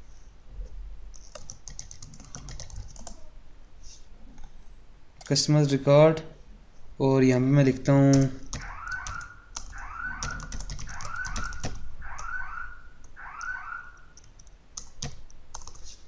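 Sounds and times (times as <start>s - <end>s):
keyboard keys clicking: 1.2s - 3.2s, 8.1s - 12.4s, 13.0s - 15.9s.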